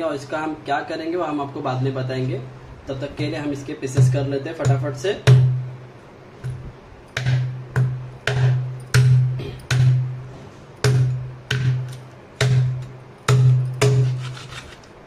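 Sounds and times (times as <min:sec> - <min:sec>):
knife chopping on cutting board: 0:07.2 - 0:10.1, 0:10.8 - 0:14.8.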